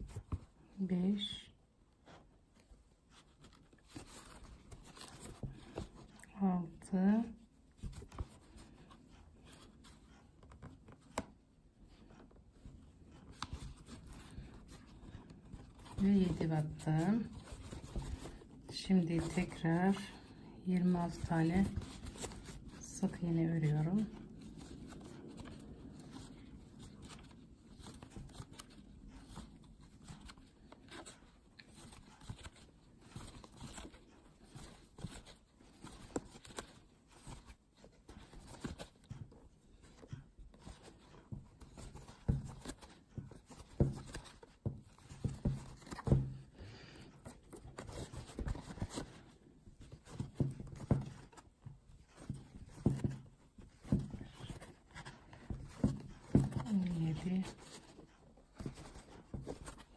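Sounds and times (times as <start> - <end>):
crochet hook pulling yarn: 8.0 - 37.2.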